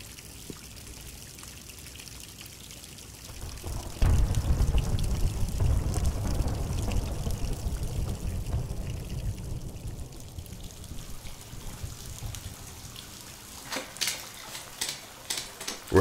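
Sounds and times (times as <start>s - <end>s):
rain: 0.0s - 16.0s
sharp drips or splashes: 0.0s - 16.0s
trickling water: 0.0s - 16.0s
low rumble: 3.4s - 12.8s.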